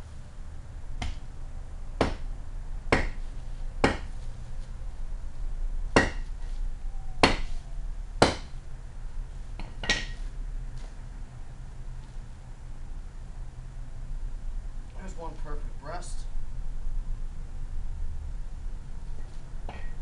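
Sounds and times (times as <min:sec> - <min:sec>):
hatchet chopping: 0:01.0 - 0:01.2, 0:02.0 - 0:02.3, 0:02.9 - 0:03.2, 0:03.8 - 0:04.1, 0:05.9 - 0:06.3, 0:07.2 - 0:07.6, 0:08.2 - 0:08.6, 0:09.6 - 0:10.2.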